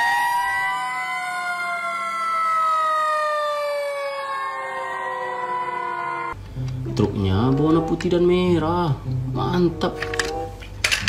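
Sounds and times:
fire engine sirens wailing: 0.0 - 6.4.

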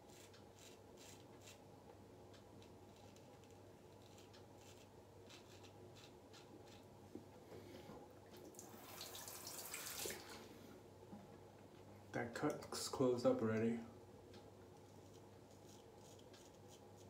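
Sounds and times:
razor scraping stubble: 0.1 - 1.6, 2.6 - 6.9, 14.8 - 17.0
water running: 8.4 - 10.6.

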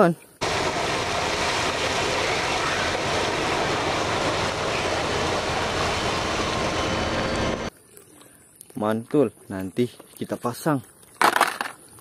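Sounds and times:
haul truck running: 0.4 - 7.7.

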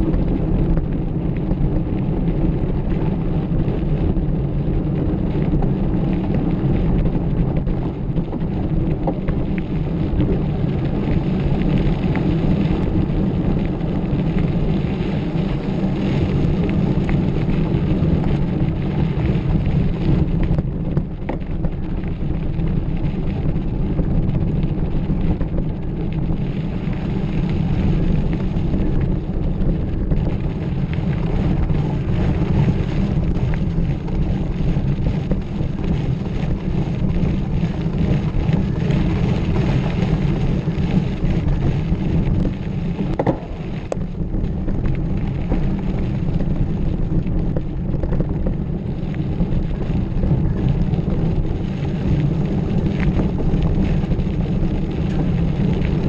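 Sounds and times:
wind on microphone: 0.0 - 56.0
tyres rumbling on dirt: 27.8 - 48.8.

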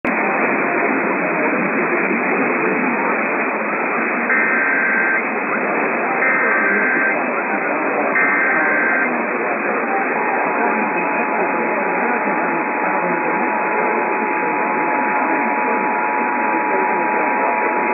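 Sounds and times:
radio static: 0.1 - 17.9
two-tone digital data bursts: 4.3 - 11.6.

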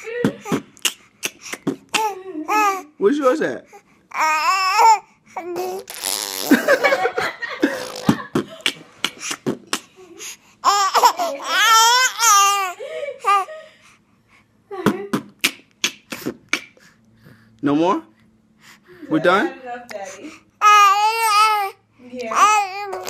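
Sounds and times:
baby girl laughing: 0.0 - 2.8, 4.2 - 13.7.

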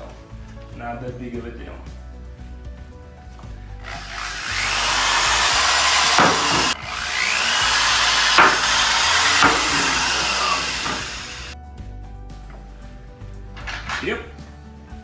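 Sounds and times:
electric drill whining: 3.8 - 11.6.

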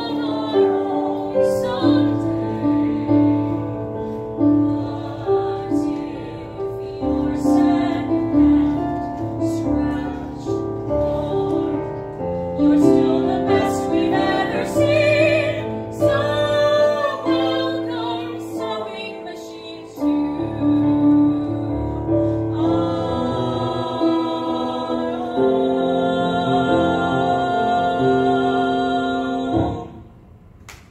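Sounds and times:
woman singing: 0.0 - 3.6, 4.4 - 29.9
piano accompaniment: 0.0 - 30.3.

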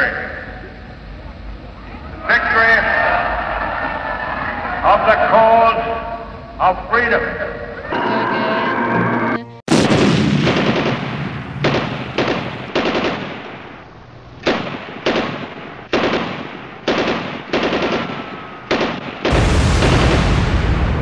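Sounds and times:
continuous blast of noise: 0.0 - 21.0
machine-gun fire bursts: 9.7 - 21.0.

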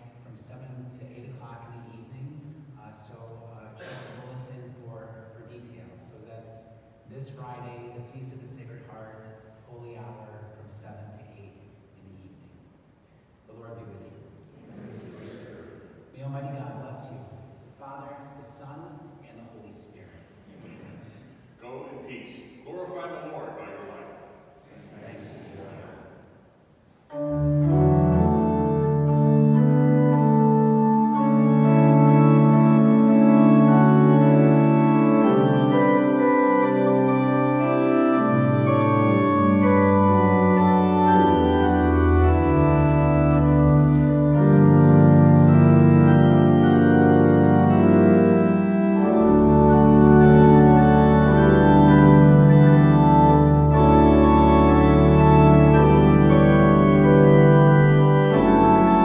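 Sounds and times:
organ playing sustained chords: 0.0 - 12.4, 27.1 - 59.0
deep bass organ notes: 27.1 - 59.0.

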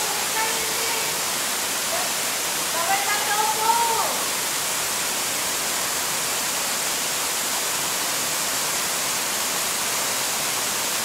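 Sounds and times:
waterfall rushing into pool: 0.0 - 11.0.

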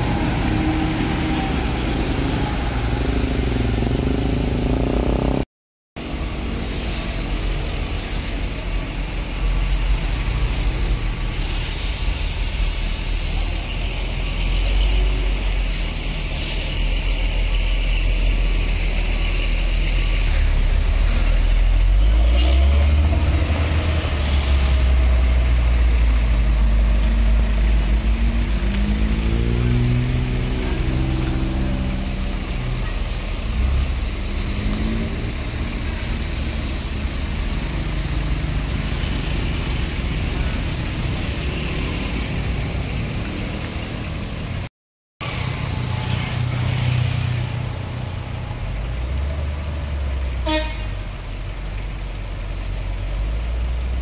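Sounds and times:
traffic engines droning: 0.0 - 54.0
engine note rising and falling: 22.0 - 32.6
vehicle horn honking: 50.4 - 51.0.

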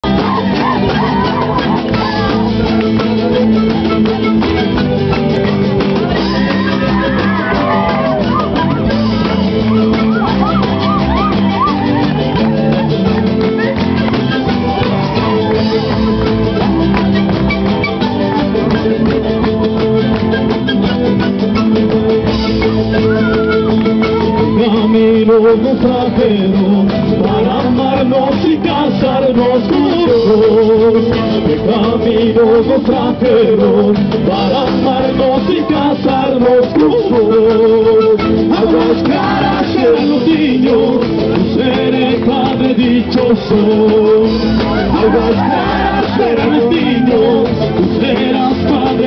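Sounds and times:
panpipes melody: 0.0 - 24.9
electric guitar: 0.0 - 49.0
steady beat: 0.0 - 49.0
strummed acoustic guitars: 0.0 - 49.0.

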